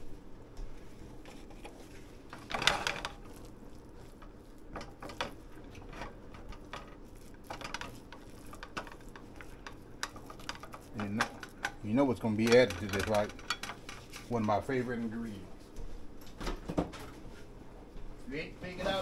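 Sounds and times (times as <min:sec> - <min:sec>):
utensil scraping rustle: 0:00.0 - 0:14.8
cookware clicks and knocks: 0:10.1 - 0:14.0.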